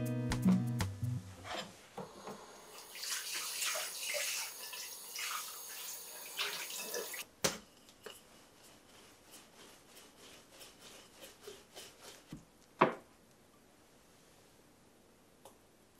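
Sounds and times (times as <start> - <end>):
water running and splashing: 2.7 - 7.2.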